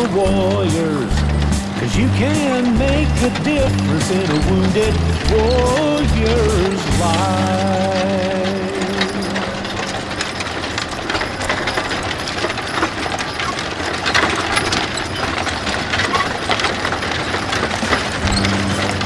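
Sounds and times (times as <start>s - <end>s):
person singing: 0.0s - 10.0s
hooves clip-clopping: 0.0s - 19.0s
wooden wagons rattling: 0.0s - 19.0s.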